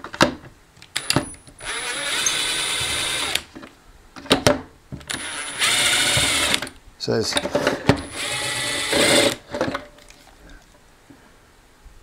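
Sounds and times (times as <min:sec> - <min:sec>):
cordless drill driving screws: 0:01.0 - 0:03.5, 0:05.1 - 0:06.8, 0:08.0 - 0:09.4.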